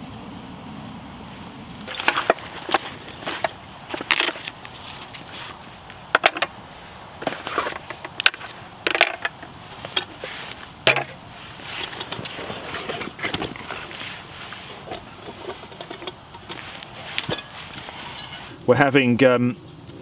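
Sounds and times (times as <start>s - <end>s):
faint background noise: 0.0s - 20.0s
cooking gear clinking and knocking: 1.9s - 5.3s, 7.2s - 10.3s, 10.9s - 14.1s, 14.8s - 18.5s.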